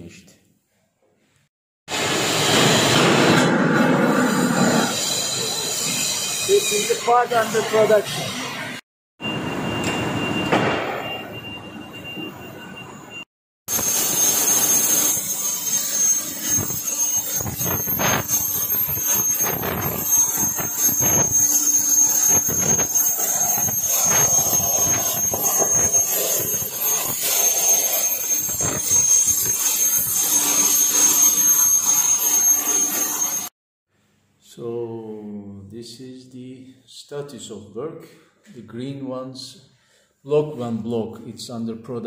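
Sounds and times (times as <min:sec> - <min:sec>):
plasma cutter hissing and whining: 0:01.9 - 0:08.8, 0:13.7 - 0:33.5.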